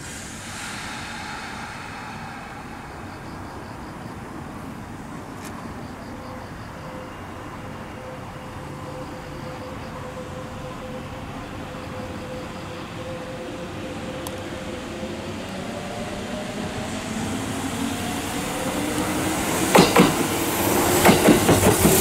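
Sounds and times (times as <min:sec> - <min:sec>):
hiss: 0:00.0 - 0:05.9, 0:11.1 - 0:22.0
faint whine: 0:00.0 - 0:19.2
electric train approaching: 0:00.0 - 0:22.0.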